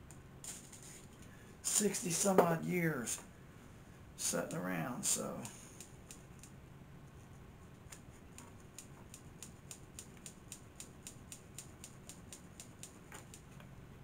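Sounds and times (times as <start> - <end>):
light high-pitched clicking: 8.4 - 13.5.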